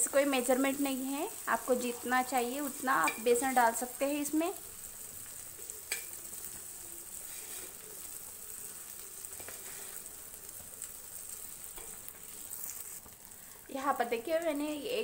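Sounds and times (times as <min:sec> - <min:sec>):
faint sizzling in oil: 0:00.0 - 0:15.0.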